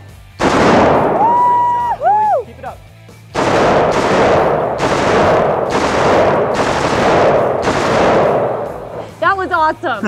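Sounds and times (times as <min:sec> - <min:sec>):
rifle firing short bursts: 0:03.4 - 0:09.2.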